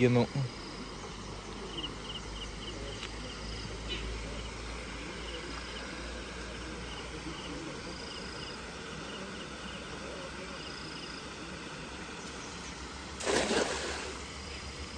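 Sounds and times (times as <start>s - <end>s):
insect chirping in high pulses: 0.0s - 3.7s.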